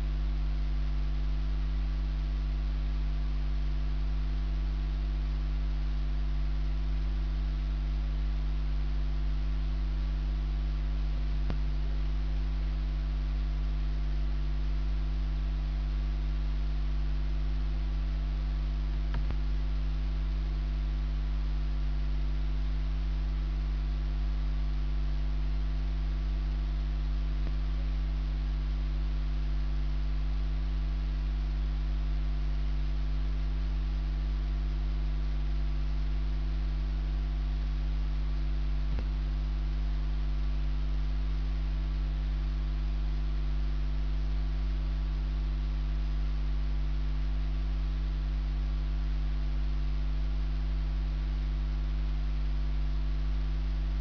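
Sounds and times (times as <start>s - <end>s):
electrical mains hum: 0.0s - 54.0s
faint clicks: 19.1s - 19.4s.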